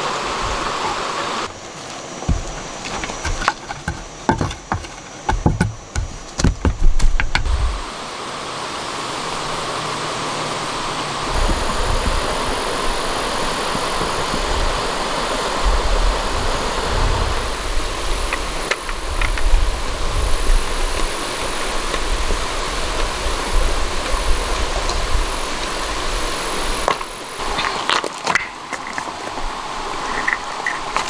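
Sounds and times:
stream water rushing: 0.0 - 31.0.

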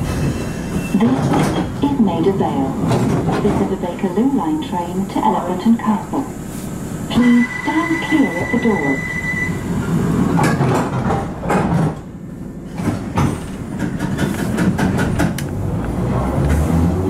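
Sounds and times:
train rumbling on rails: 0.0 - 17.0
wheels clacking over rail joints: 10.3 - 15.6.

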